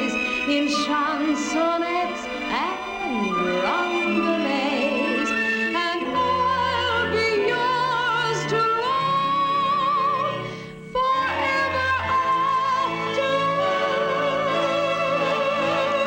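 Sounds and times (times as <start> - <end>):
music with wavering high notes: 1.6 - 14.5.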